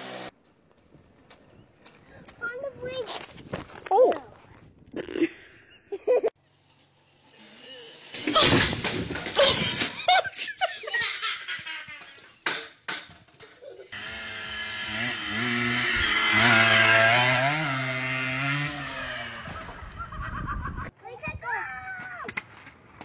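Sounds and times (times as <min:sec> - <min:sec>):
hearty laughter: 0:05.1 - 0:06.4, 0:09.4 - 0:12.4, 0:19.4 - 0:20.9.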